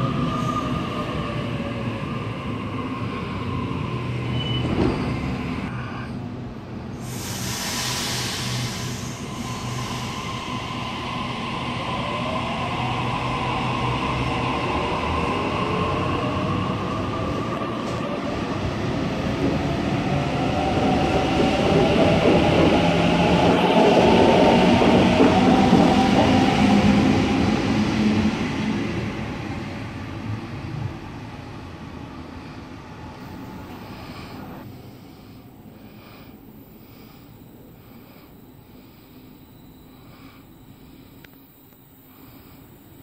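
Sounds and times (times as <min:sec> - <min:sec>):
electric train accelerating: 0:07.0 - 0:35.3.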